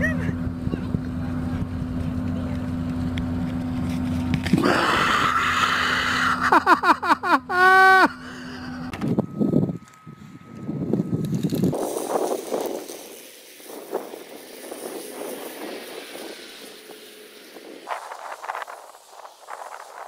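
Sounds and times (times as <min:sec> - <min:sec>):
steady low drone: 0:00.0 - 0:19.8
person laughing: 0:04.6 - 0:08.7.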